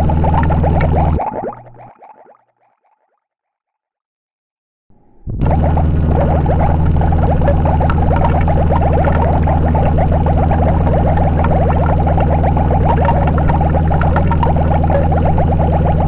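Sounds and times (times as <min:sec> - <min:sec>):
dense crackling: 0:00.0 - 0:01.9, 0:05.4 - 0:16.0
distorted noise wall: 0:00.0 - 0:01.9, 0:04.9 - 0:16.0
low drone: 0:05.0 - 0:16.0
scattered clicks: 0:06.2 - 0:16.0.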